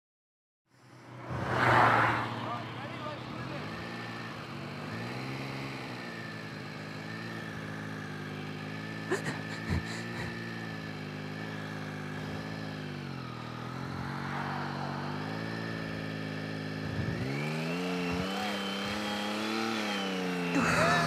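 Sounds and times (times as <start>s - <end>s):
motorcycle engine under load: 2.5s - 21.0s.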